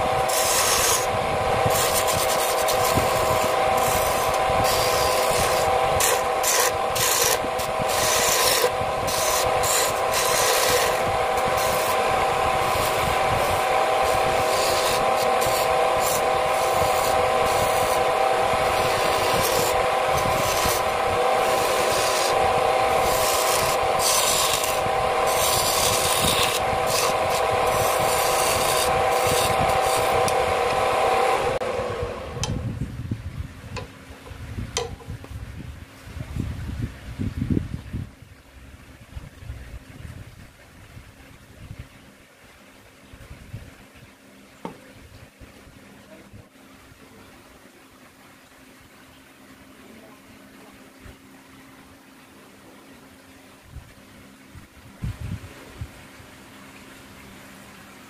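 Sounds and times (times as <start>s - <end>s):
chisel scraping spinning wood: 0.0s - 31.6s
wood lathe humming: 0.0s - 32.7s.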